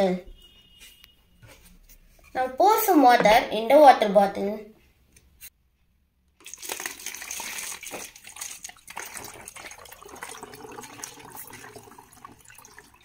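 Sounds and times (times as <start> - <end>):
water poured through a funnel: 6.4 - 13.0.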